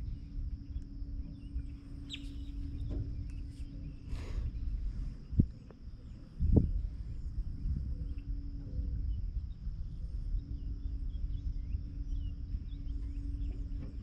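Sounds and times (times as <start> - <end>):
faint bird chirps: 0.0 - 14.0
high insect drone: 0.0 - 14.0
wind rumble on microphone: 0.0 - 14.0.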